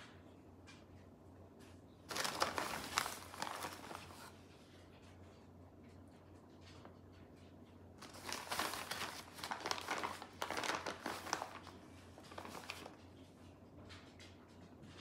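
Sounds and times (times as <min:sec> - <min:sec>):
plastic bag crinkling: 0:02.1 - 0:04.3, 0:08.0 - 0:13.0.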